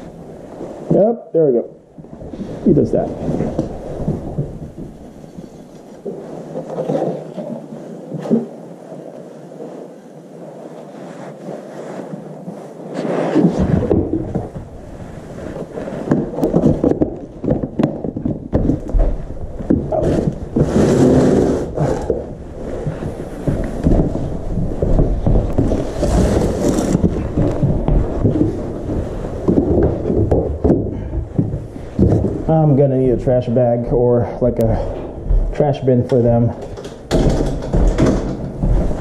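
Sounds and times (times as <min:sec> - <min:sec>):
fabric rubbing on microphone: 0:02.0 - 0:17.4, 0:19.0 - 0:30.1
scuffs: 0:02.0 - 0:39.0
low rumbling handling noise: 0:13.4 - 0:39.0
cat litter scraping and rustling: 0:19.0 - 0:30.5.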